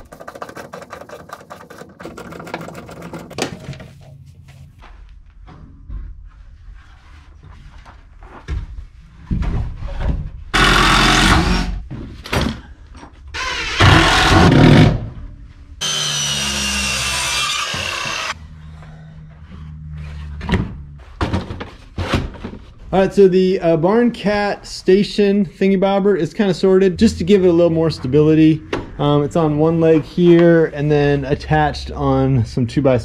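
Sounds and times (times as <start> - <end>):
knocks and handling sounds: 0.0 - 10.5, 19.4 - 22.9
power tool working wood: 10.6 - 11.8, 13.4 - 14.9, 15.8 - 18.4.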